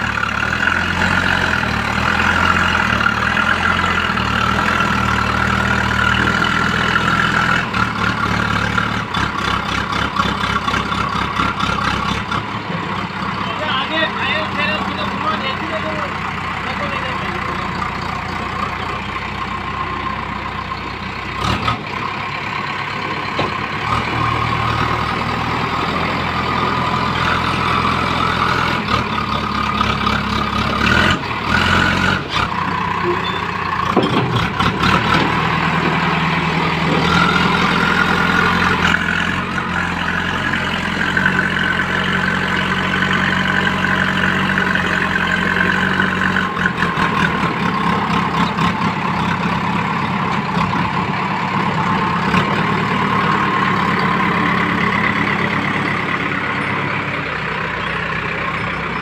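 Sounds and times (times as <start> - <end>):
diesel engine running: 0.0 - 59.0
high engine whine: 12.3 - 59.0.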